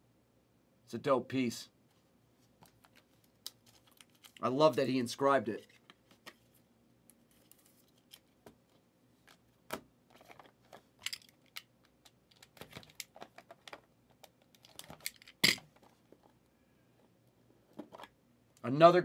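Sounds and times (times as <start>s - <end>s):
cards in plastic holders clattering: 9.7s - 16.0s.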